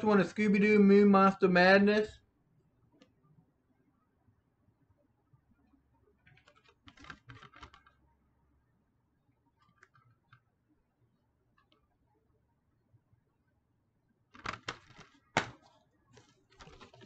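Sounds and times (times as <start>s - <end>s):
plastic case clicking: 14.4s - 15.6s.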